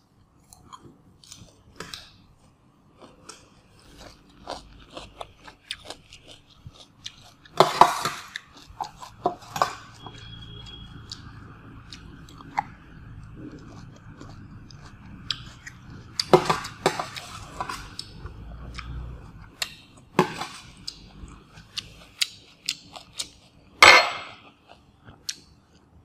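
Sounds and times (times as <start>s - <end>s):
chewing: 0.4s - 26.0s.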